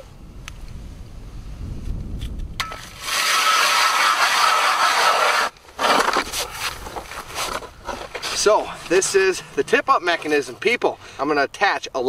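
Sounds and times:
ice auger grinding: 2.6s - 9.2s.

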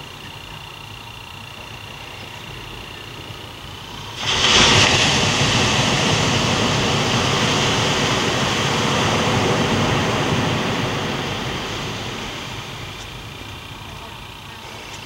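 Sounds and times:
loud steady rushing noise: 3.8s - 15.0s.

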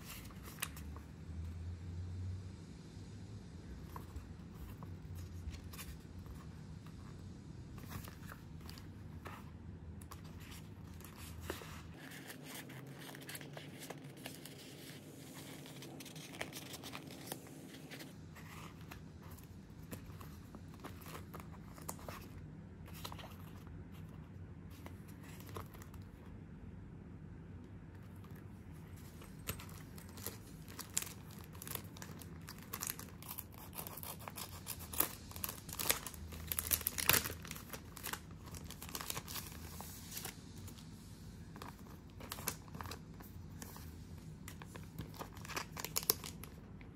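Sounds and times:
paper pages flipping: 0.0s - 1.1s, 7.8s - 26.3s, 27.9s - 40.8s, 41.5s - 46.9s
plastic wrapping crinkling: 28.3s - 40.8s, 41.5s - 46.9s.

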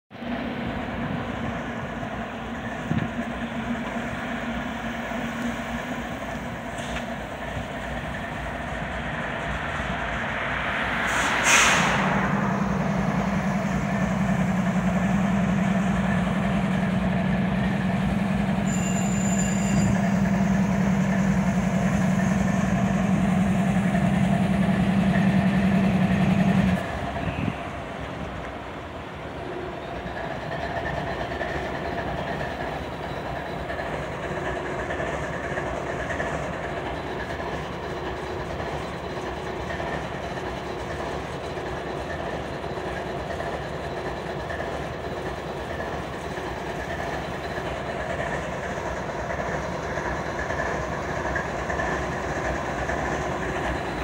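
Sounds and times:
diesel locomotive idling: 0.1s - 54.0s
air hiss: 11.0s - 12.2s.

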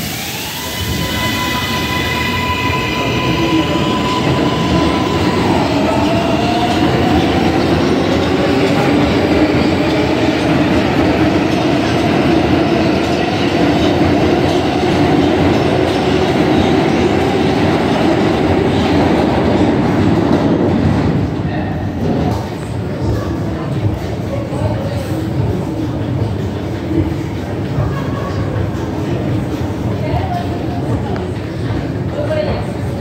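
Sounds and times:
train propulsion high tone: 0.0s - 21.9s.

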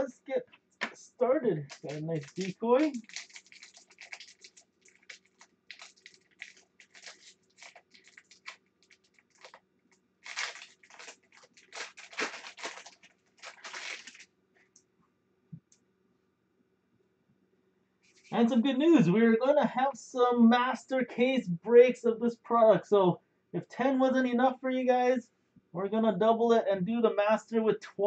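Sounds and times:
card pack wrapper crinkling and tearing: 1.6s - 9.6s, 10.2s - 14.2s.

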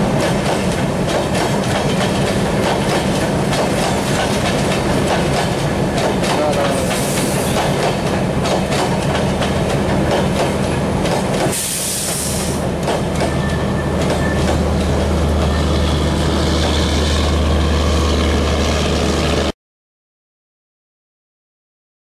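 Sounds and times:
train wheels clicking over rail joints: 0.0s - 17.1s.

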